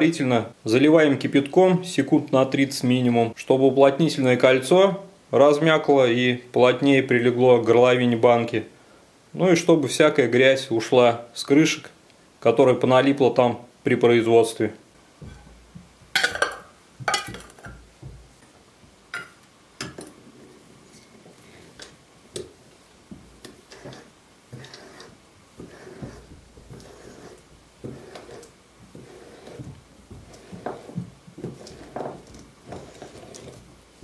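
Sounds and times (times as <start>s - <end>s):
metal lids and glass jars clinking: 16.2s - 17.8s.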